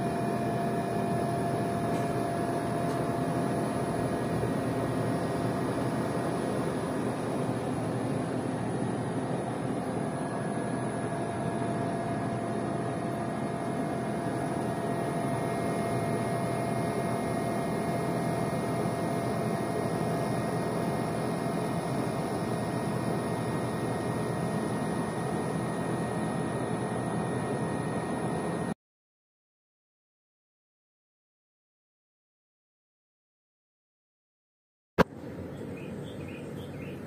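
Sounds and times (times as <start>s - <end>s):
air conditioner fan and compressor: 0.0s - 28.8s, 35.0s - 37.0s.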